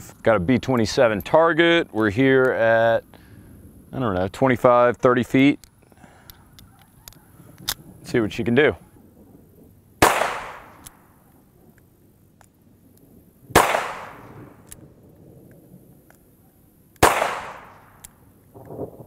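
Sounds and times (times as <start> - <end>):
revolver gunshots: 10.0 - 11.2, 13.5 - 14.7, 17.0 - 18.2.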